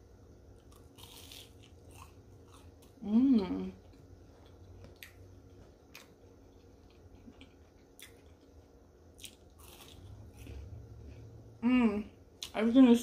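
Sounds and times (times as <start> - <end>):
person chewing food: 0.6 - 3.0, 3.8 - 11.4.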